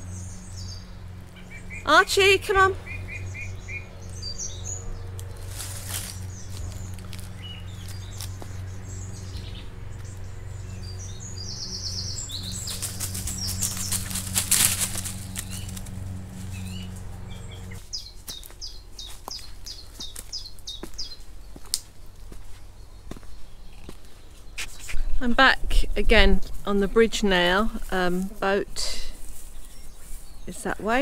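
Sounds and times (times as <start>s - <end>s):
songbirds chirping and singing: 0.0s - 31.0s
steady low hum: 0.0s - 31.0s
footsteps rustling through leaves: 3.0s - 11.4s, 12.0s - 25.1s, 26.4s - 31.0s.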